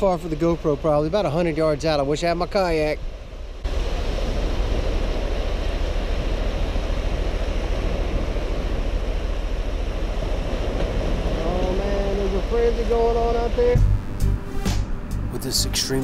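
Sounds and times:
wind rumble on microphone: 0:03.1 - 0:13.9.

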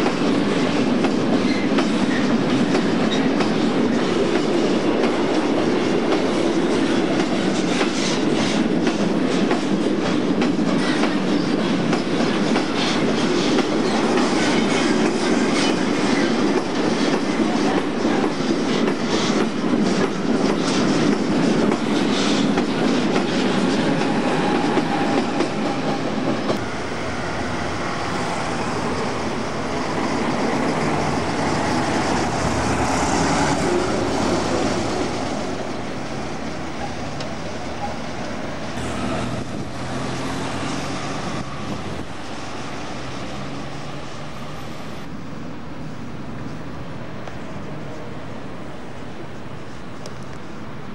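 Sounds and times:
freight train rumbling past: 0:00.0 - 0:50.9.

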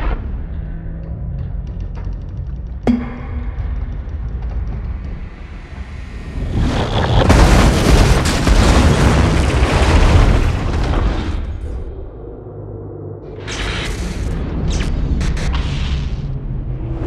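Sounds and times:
low rumble: 0:00.0 - 0:17.0
train crashing: 0:06.9 - 0:11.5.

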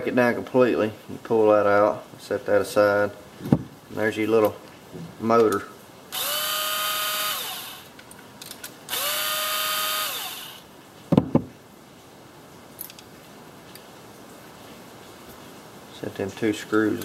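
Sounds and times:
cordless electric screwdriver running: 0:06.1 - 0:08.0, 0:08.9 - 0:10.7.

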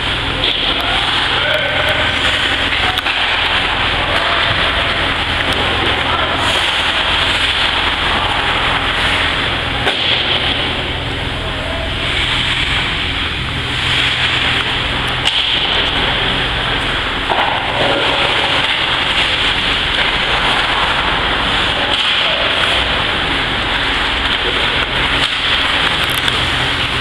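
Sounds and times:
low hum: 0:00.0 - 0:27.0
steady rushing noise: 0:00.0 - 0:27.0
faint voices: 0:00.1 - 0:09.8.

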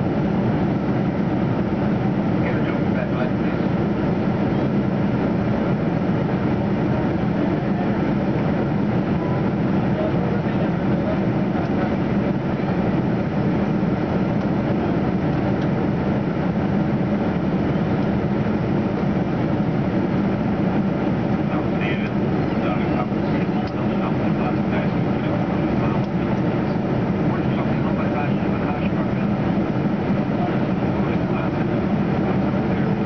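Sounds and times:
jet engine cabin drone: 0:00.0 - 0:33.0.

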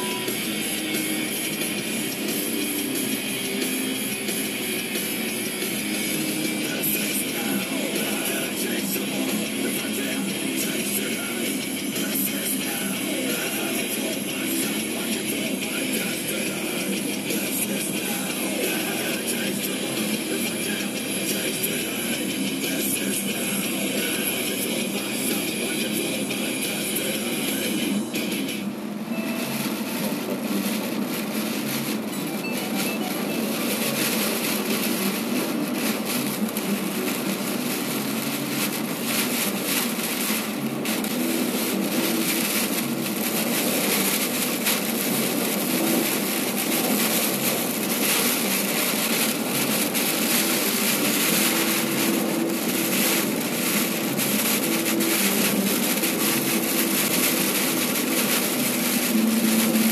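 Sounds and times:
car road and wind noise: 0:33.4 - 0:59.9.

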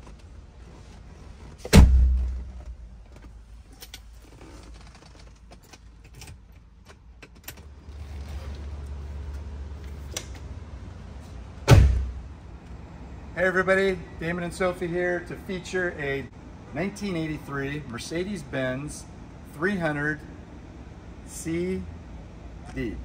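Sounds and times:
low steady hum: 0:00.0 - 0:23.0
car door shutting with a thud: 0:01.6 - 0:02.6, 0:11.6 - 0:12.2.

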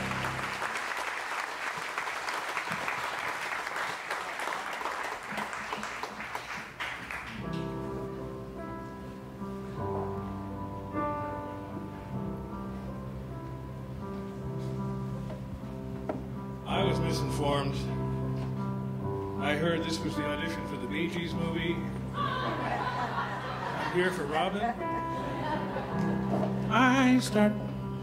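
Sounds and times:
band playing soft chords: 0:00.0 - 0:01.8, 0:06.8 - 0:28.0
audience applauding: 0:00.0 - 0:07.6.

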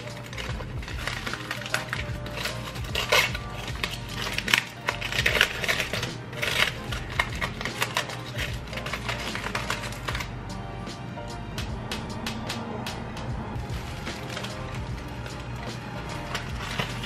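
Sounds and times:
aluminium foil crinkling: 0:00.0 - 0:10.3, 0:13.7 - 0:17.0.

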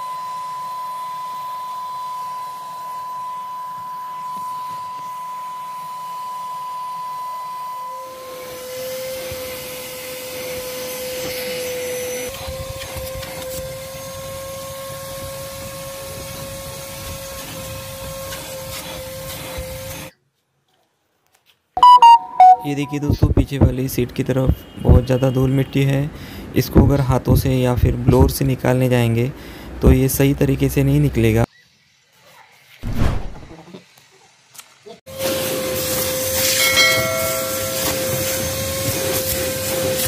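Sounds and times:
vacuum cleaner running: 0:06.8 - 0:20.1, 0:35.1 - 0:40.0.

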